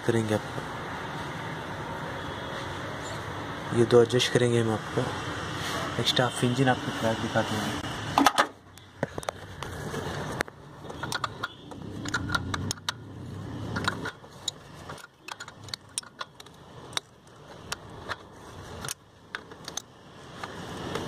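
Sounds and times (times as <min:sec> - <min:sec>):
spanner clicking on bolt: 0:10.9 - 0:13.0, 0:13.7 - 0:17.1.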